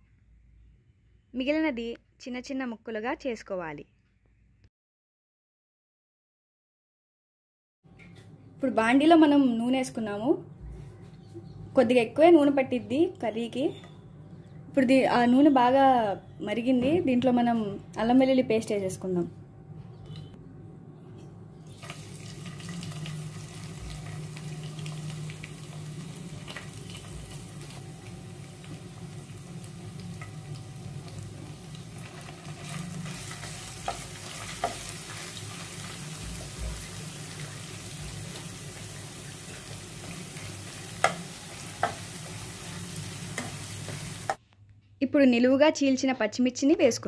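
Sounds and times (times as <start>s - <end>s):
paste sizzling in hot oil: 21.7s - 44.4s.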